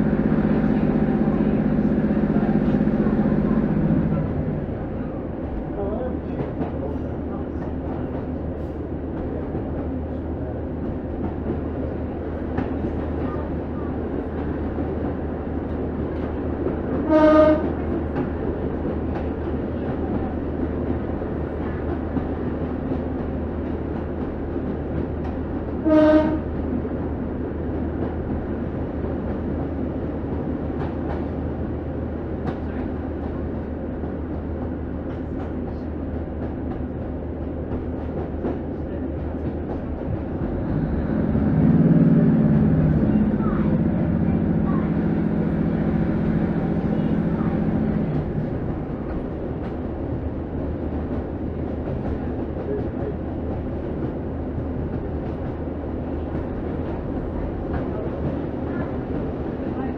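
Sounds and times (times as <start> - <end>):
diesel train rumbling: 0.0 - 59.9
train horn blasts: 17.0 - 17.8, 25.8 - 26.6.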